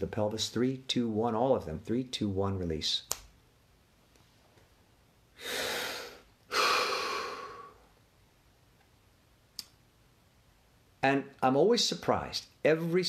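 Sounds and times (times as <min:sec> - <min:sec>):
man breathing out through mouth: 0:05.4 - 0:07.8
man breathing in: 0:05.4 - 0:07.9.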